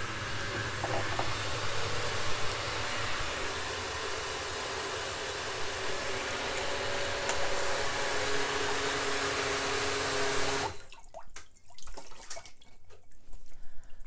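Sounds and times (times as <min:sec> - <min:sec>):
blender running: 0:00.0 - 0:10.8.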